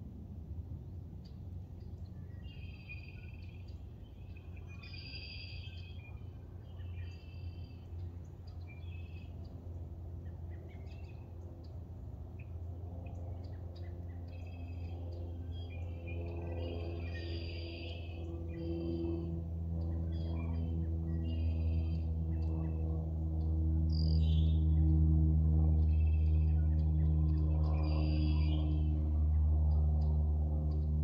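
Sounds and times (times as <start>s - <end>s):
steady low hum: 0.0s - 31.0s
birds chirping: 25.7s - 30.1s.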